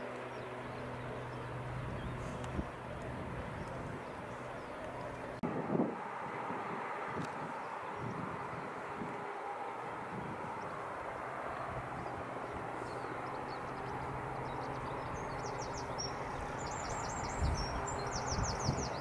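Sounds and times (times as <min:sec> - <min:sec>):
jet engines rumbling: 0:00.0 - 0:19.0
bird singing high trills: 0:12.8 - 0:19.0.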